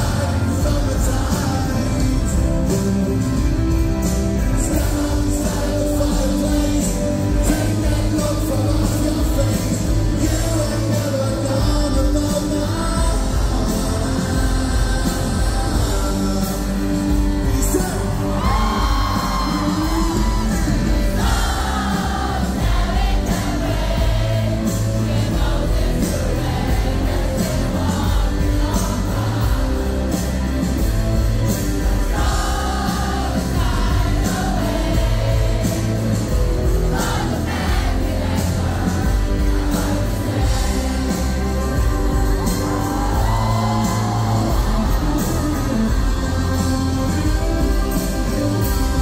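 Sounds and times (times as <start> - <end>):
audience singing along: 0.0 - 49.0
lead vocal singing: 0.0 - 49.0
rock band playing pop-rock ballad: 0.0 - 49.0
audience whooping: 17.7 - 22.3, 41.9 - 46.7.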